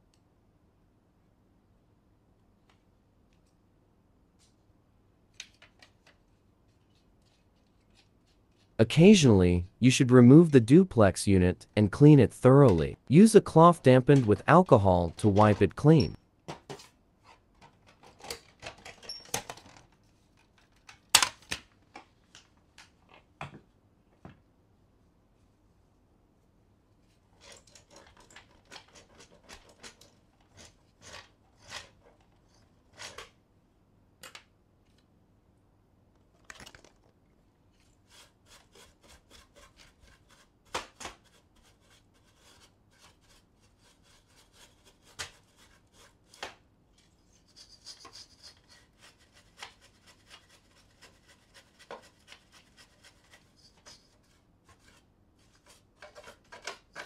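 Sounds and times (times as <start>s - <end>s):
brush scrubbing plastic: 47.4s - 56.5s.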